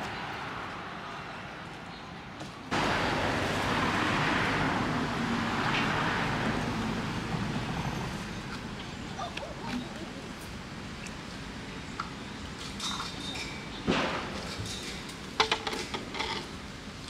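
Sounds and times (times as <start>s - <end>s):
distant road traffic hiss: 0.0s - 17.0s.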